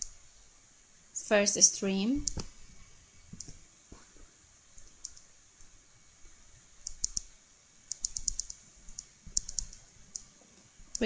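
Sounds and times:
mouse and keyboard clicks: 0:02.2 - 0:02.5, 0:04.8 - 0:05.3, 0:06.8 - 0:07.3, 0:07.9 - 0:10.3.

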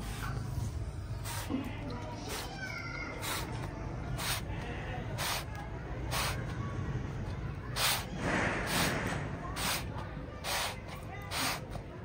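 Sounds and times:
hissing swishes of steam: 0:03.2 - 0:03.6, 0:04.2 - 0:04.5, 0:05.1 - 0:05.5, 0:06.1 - 0:06.5, 0:07.8 - 0:11.7.

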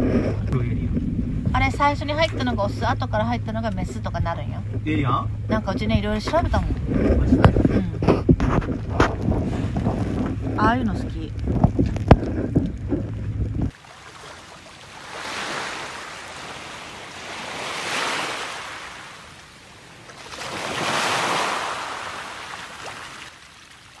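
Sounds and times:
wind on microphone: 0:00.0 - 0:13.8
sea waves washing in: 0:08.8 - 0:24.0.

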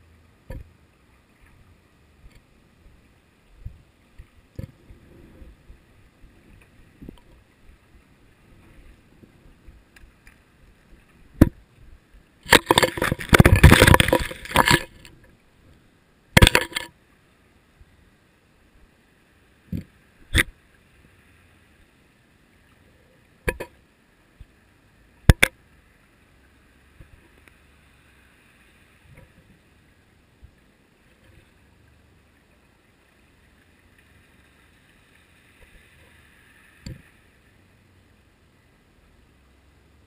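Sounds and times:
faint water hiss: 0:00.0 - 0:40.0
camera housing knocking underwater: 0:12.5 - 0:15.0, 0:16.4 - 0:16.9.

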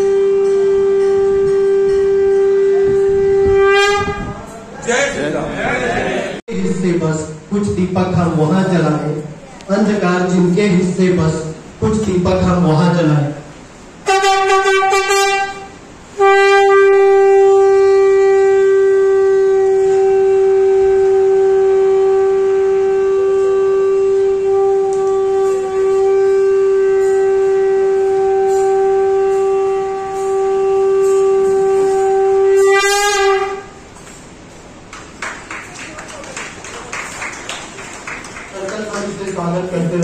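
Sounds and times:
conch shell blast: 0:00.0 - 0:04.7, 0:13.6 - 0:34.9.

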